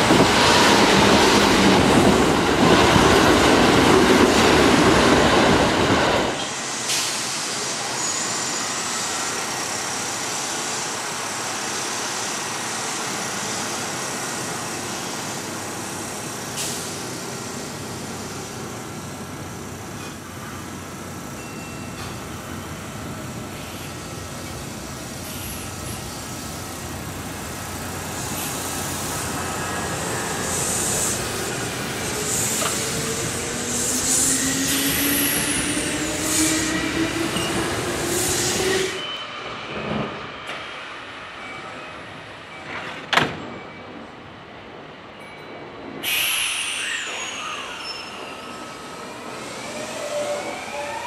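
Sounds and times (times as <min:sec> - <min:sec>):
train wheels rumbling on rails: 0:00.0 - 0:51.0
train wheels squealing: 0:06.4 - 0:10.6, 0:29.5 - 0:44.1, 0:45.1 - 0:51.0.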